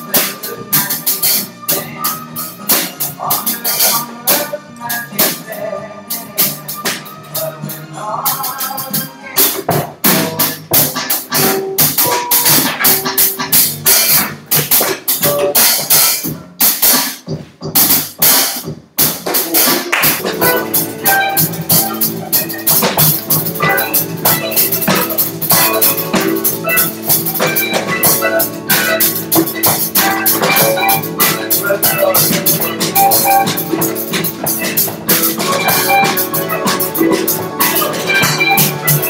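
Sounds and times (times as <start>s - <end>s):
keyboard: 0.0s - 16.7s, 19.3s - 39.0s
drum kit groove: 0.0s - 39.0s
electric guitars: 19.3s - 39.0s.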